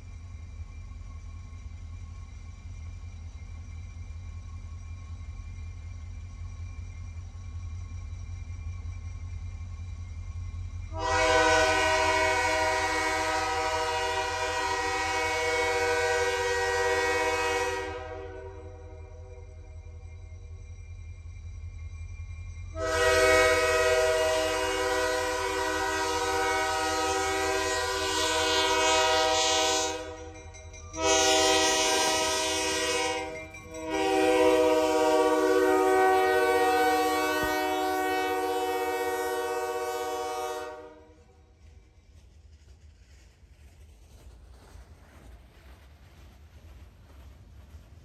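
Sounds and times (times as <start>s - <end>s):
locomotive air horn blasts: 10.9s - 19.2s, 22.8s - 30.3s, 31.0s - 41.2s.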